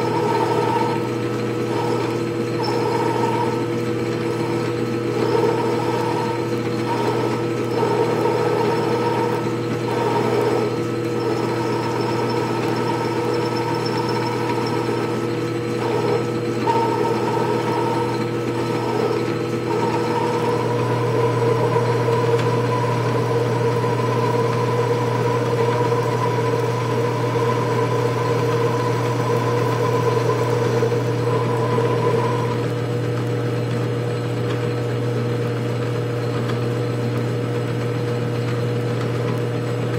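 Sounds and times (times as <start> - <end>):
lathe motor humming: 0.0 - 39.9.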